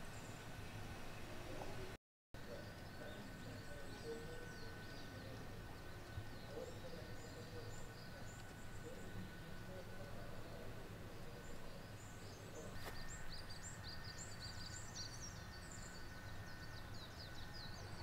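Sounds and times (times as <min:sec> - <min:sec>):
small birds chirping: 0:02.4 - 0:18.0.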